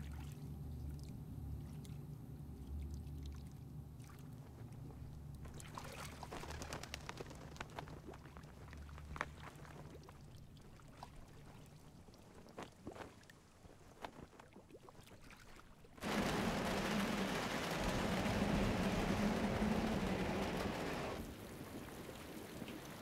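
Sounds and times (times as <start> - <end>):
water drips and splashes: 14.2 - 23.0
low hum: 16.0 - 22.3
heavy rain rushing: 16.0 - 23.0.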